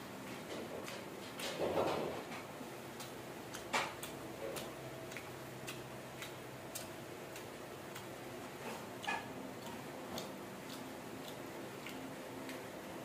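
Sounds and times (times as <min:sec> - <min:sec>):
faint steady hum: 0:00.0 - 0:13.0
crunchy fried food being chewed: 0:02.9 - 0:13.0.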